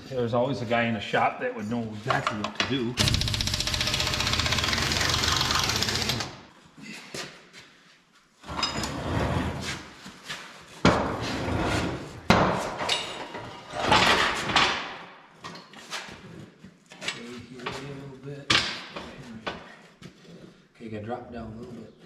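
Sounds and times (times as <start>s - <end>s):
impact wrench rattling: 3.0s - 6.4s
metal parts clanking and scraping: 12.8s - 14.7s.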